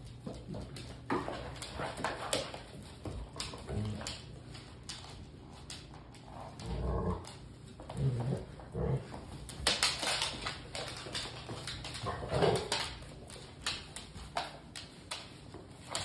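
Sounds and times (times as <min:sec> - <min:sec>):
claws clicking on wooden floor: 0:00.0 - 0:16.0
dogs growling: 0:06.3 - 0:09.4, 0:11.9 - 0:13.0.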